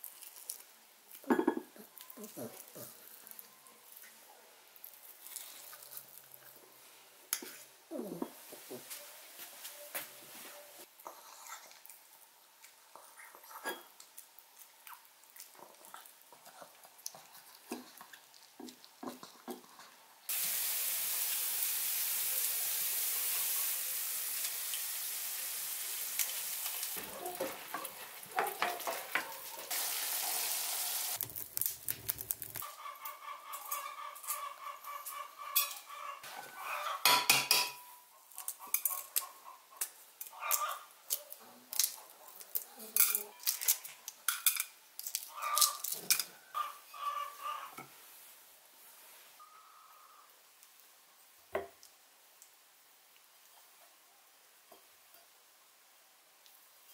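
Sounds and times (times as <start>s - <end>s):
onions sizzling in a frying pan: 20.3s - 32.6s.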